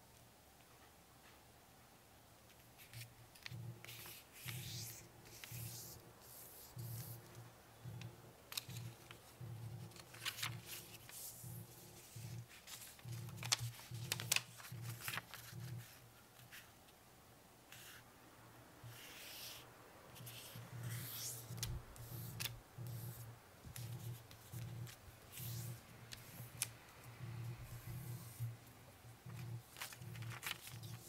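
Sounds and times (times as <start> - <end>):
paper rustling and crinkling: 8.5 - 16.7, 29.2 - 31.0.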